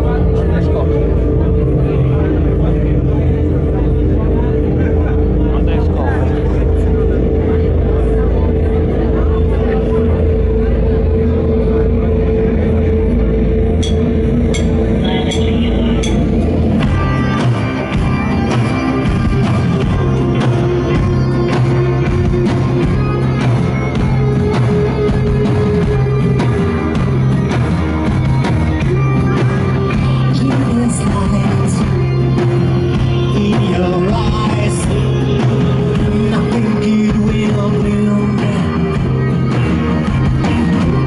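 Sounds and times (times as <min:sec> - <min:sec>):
rock band playing: 0:00.0 - 0:41.0
drum beat: 0:14.5 - 0:41.0
person singing: 0:28.8 - 0:41.0.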